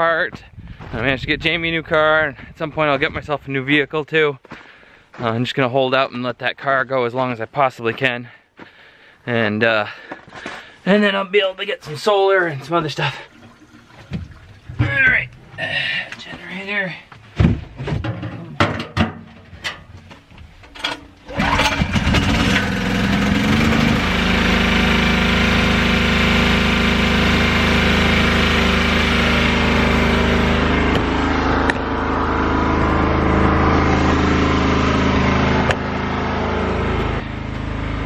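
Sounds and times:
generator engine running: 12.8s - 18.6s, 19.3s - 38.0s
knocks and clatters: 17.3s - 22.5s.

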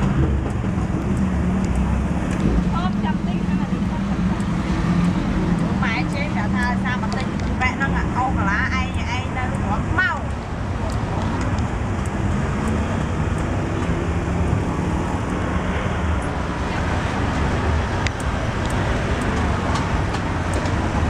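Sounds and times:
sharp clicks: 0.0s - 3.3s, 8.8s - 14.2s, 17.4s - 21.0s
street traffic rumble: 0.0s - 21.0s.

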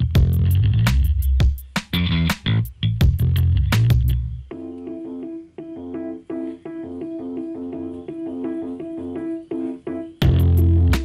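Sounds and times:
keyboard playing repeating pattern: 4.4s - 11.0s.

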